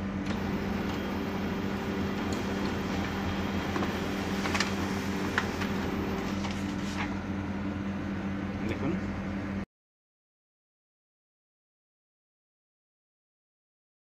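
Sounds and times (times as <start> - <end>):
printer motor hum with whine: 0.0 - 9.6
paper path clicks: 3.7 - 7.1.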